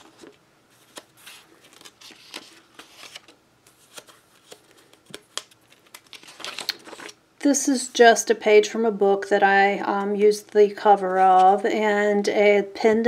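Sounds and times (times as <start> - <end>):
paper pages rustling: 0.0 - 7.2.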